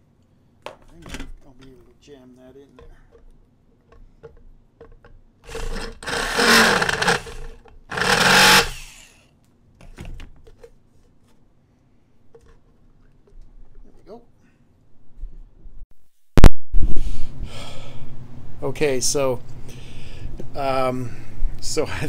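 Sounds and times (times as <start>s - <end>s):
electric drill boring plastic: 5.5s - 9.2s.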